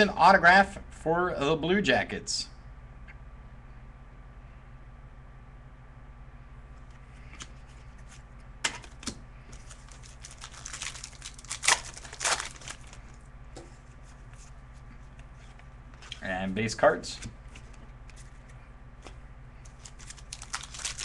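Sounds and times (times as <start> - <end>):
steady low hum: 0.0 - 21.0
wrapper crinkling and tearing: 9.6 - 13.1, 19.6 - 21.0.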